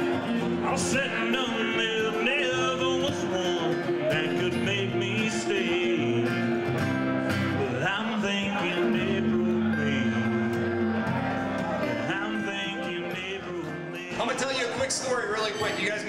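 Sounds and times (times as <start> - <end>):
man singing: 0.0 - 10.8, 11.8 - 16.0
acoustic guitar: 0.0 - 16.0.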